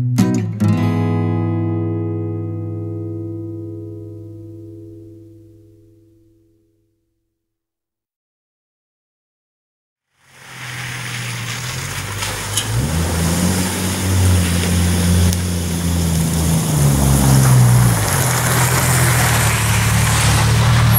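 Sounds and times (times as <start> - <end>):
vehicle engine driving on gravel: 10.2 - 20.9.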